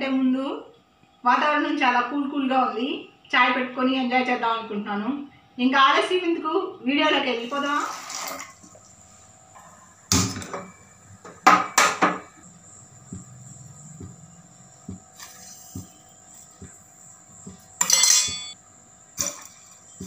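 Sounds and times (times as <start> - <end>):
metal kitchen vessels clanking: 17.8 - 18.6.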